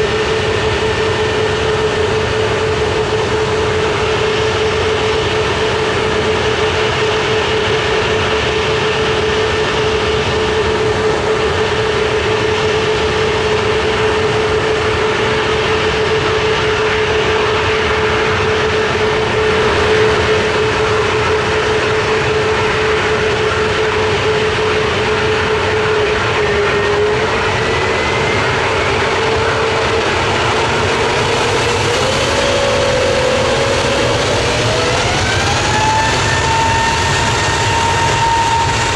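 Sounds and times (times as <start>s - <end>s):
jet engines whining: 0.0s - 38.9s.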